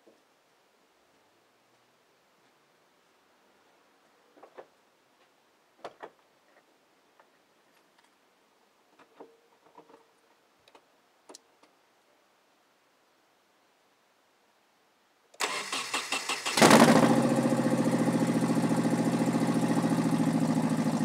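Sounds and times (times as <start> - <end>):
faint clicks and knocks: 8.9 - 11.8.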